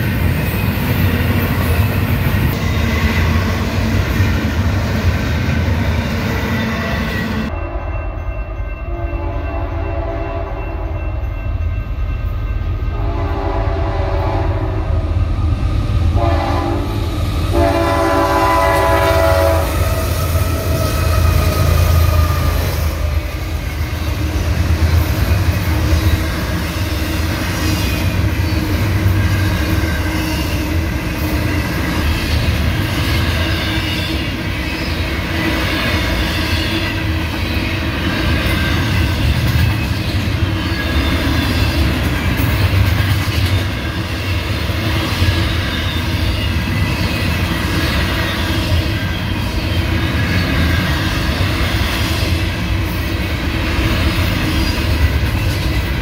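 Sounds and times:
train rumble and wheel clatter: 0:00.0 - 0:56.0
train horn blasts: 0:08.8 - 0:11.0, 0:12.9 - 0:15.1, 0:16.2 - 0:20.9.

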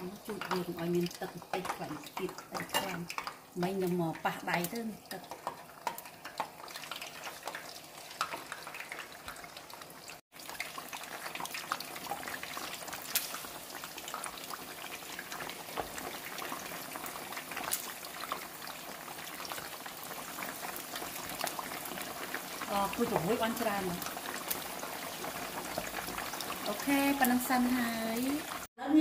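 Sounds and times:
oil crackling and popping: 0:00.0 - 0:28.7
quails deep-frying in hot oil: 0:00.0 - 0:29.0.

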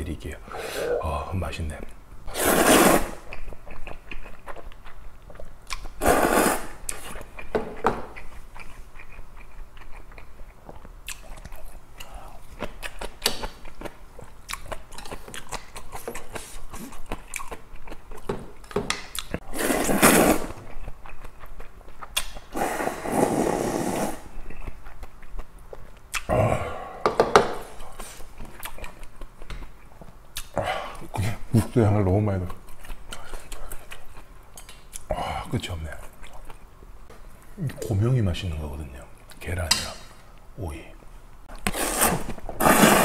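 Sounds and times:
slurping noodles: 0:00.5 - 0:01.1, 0:02.3 - 0:03.2, 0:06.0 - 0:07.0, 0:19.4 - 0:20.6, 0:22.5 - 0:24.3, 0:41.6 - 0:43.0.

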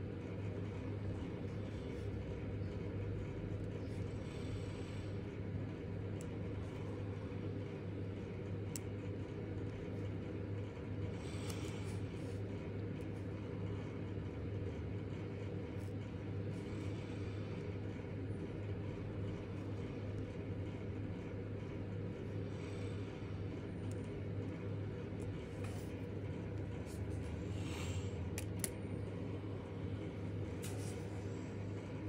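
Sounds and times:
low background hum: 0:00.0 - 0:32.0.

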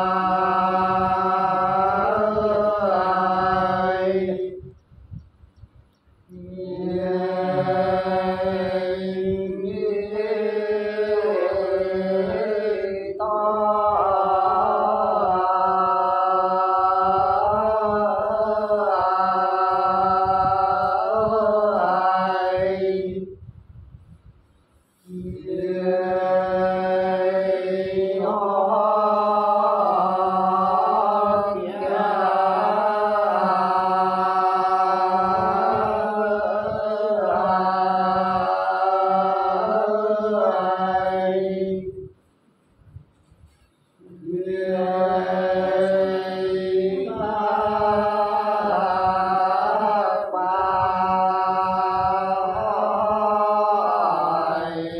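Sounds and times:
men chanting folk song: 0:25.1 - 0:41.9, 0:44.1 - 0:54.9.

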